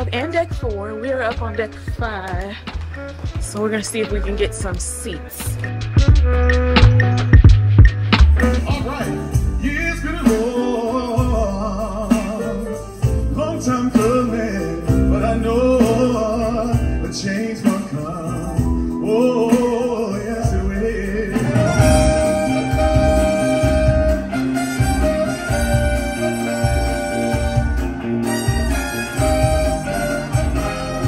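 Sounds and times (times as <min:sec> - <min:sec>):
band accompaniment: 0:00.0 - 0:31.0
person singing: 0:08.4 - 0:23.4.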